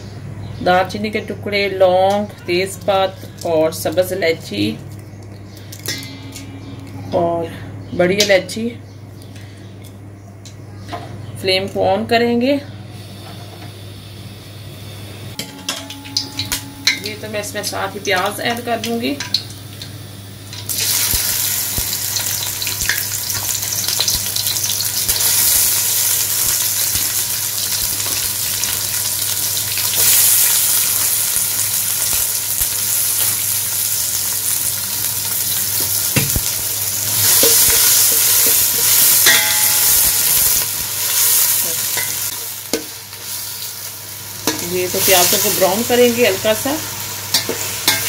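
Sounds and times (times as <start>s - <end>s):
onions sizzling in hot oil: 13.0s - 48.0s.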